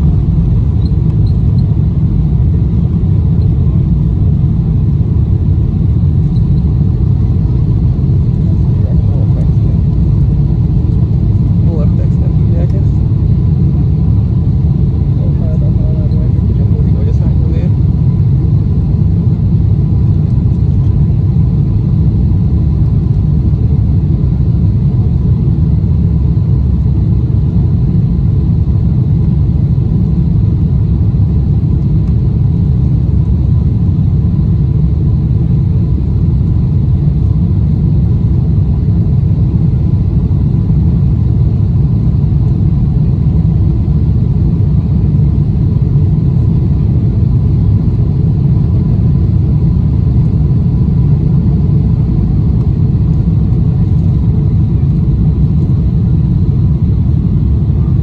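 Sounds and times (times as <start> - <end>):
airplane cabin engine rumble: 0.0 - 58.0.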